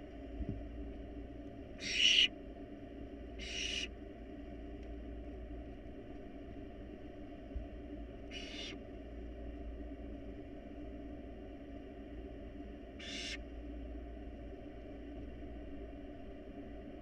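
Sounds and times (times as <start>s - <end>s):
steady low hum: 0.0s - 17.0s
owl nestlings hissing: 1.8s - 2.3s, 3.4s - 3.9s, 8.3s - 8.8s, 13.0s - 13.4s.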